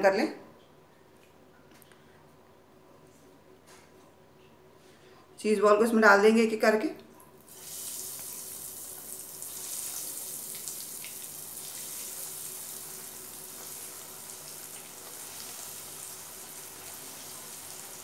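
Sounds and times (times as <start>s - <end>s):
food deep-frying in oil: 7.4s - 18.0s.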